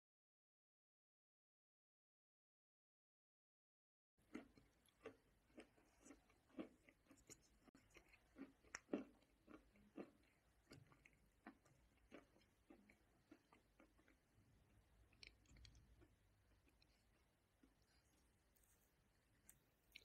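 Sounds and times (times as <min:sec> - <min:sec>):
crunchy chewing: 0:04.2 - 0:14.3, 0:15.1 - 0:20.0.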